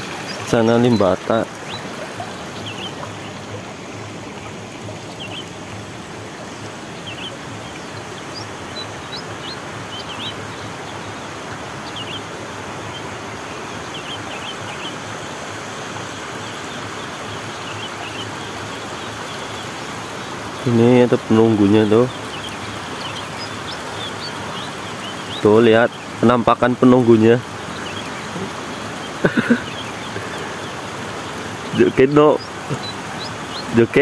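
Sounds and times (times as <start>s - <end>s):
water rushing down a channel: 0.0s - 34.0s
high bird chirps: 27.6s - 34.0s.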